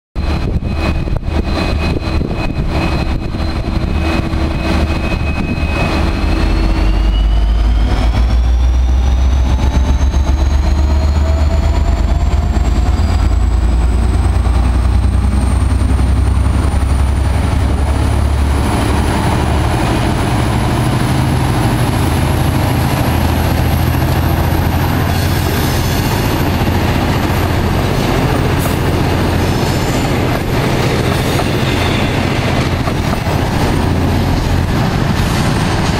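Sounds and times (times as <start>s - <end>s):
high whine rising in pitch: 0.2s - 35.3s
locomotive diesel engine rumble: 1.8s - 35.9s
train wheels clicking over rail joints: 9.8s - 35.9s.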